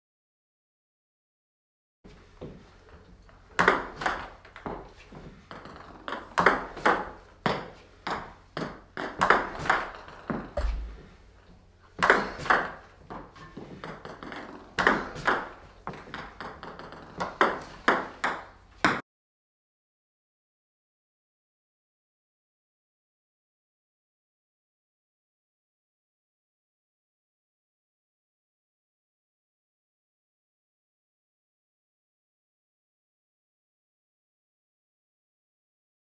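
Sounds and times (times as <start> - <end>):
table tennis ball clicks: 3.6 - 4.8, 5.5 - 10.8, 12.0 - 19.0.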